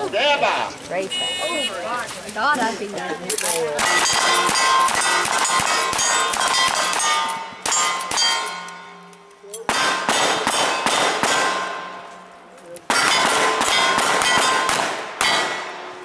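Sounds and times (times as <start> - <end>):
rifles firing rapidly: 3.8 - 8.5, 9.7 - 11.9, 12.9 - 15.8
steel plate targets ringing: 3.8 - 12.1, 12.9 - 16.0.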